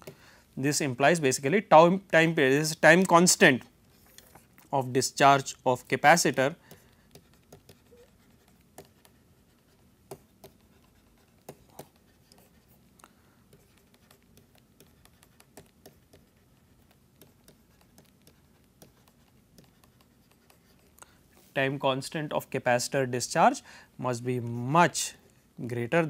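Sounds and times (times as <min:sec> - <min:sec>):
stylus tapping and scratching on screen: 0:01.5 - 0:22.2.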